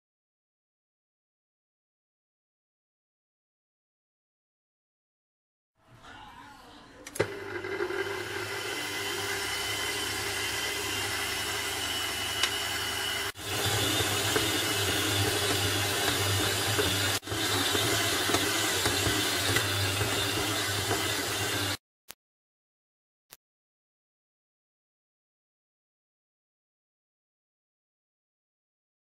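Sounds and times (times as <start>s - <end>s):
stand mixer kneading dough: 7.2s - 21.8s.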